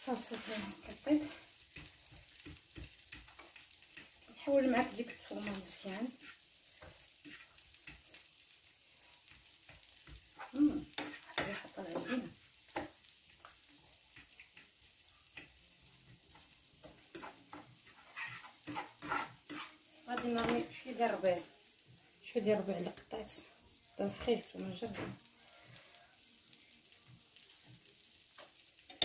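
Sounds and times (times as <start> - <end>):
sauce sizzling in a frying pan: 0.0 - 29.0
utensil scraping and knocking pan: 10.4 - 12.2, 17.1 - 20.7.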